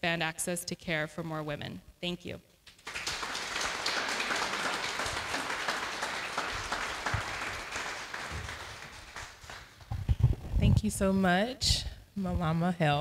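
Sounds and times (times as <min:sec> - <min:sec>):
audience applauding: 0:02.7 - 0:09.9.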